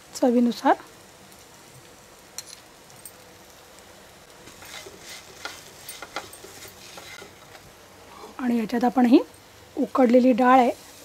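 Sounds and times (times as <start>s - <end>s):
food sizzling in a pan: 0.0s - 11.0s
spatula scraping a pan: 4.4s - 7.6s.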